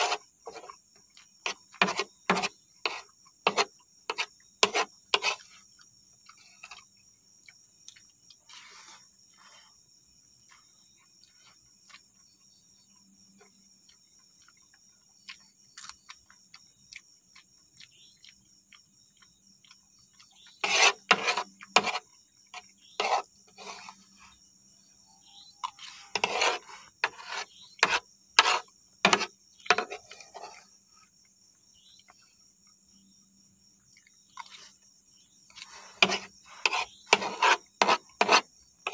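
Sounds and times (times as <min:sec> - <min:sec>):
fork scraping wooden board: 0:00.0 - 0:05.6, 0:08.5 - 0:09.7, 0:20.5 - 0:24.2, 0:25.7 - 0:30.7, 0:35.5 - 0:38.9
insects chirring: 0:00.0 - 0:38.9
eating sounds: 0:05.3 - 0:12.4, 0:13.4 - 0:24.4, 0:33.9 - 0:34.9.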